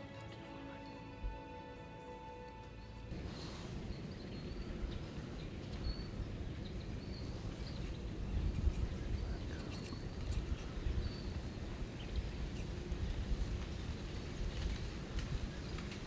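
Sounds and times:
small bird chirping: 0:03.4 - 0:12.8.

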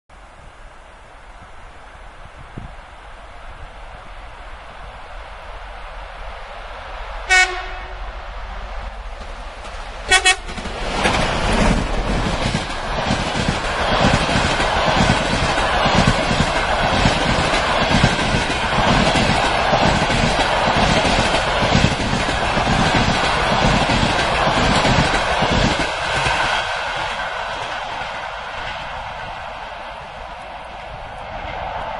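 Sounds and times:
locomotive horn toots: 0:07.3 - 0:08.1, 0:10.1 - 0:10.5
train wheels clattering over rail joints: 0:09.2 - 0:27.7.

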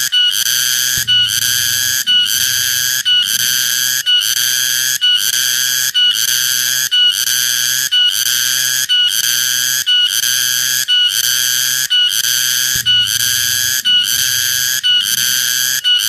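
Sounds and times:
cicada buzzing: 0:00.0 - 0:16.0.

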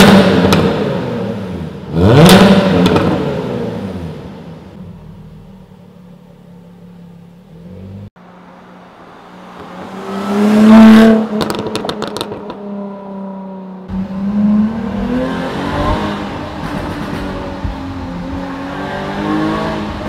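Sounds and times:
car engine revving: 0:00.0 - 0:20.0
exhaust crackles and pops: 0:11.3 - 0:12.7.

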